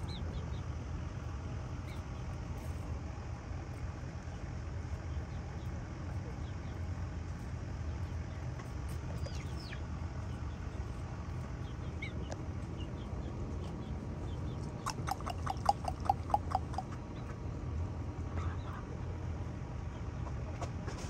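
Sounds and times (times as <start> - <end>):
faint high chirps: 14.9 - 16.9
domestic fowl calling: 14.9 - 17.0.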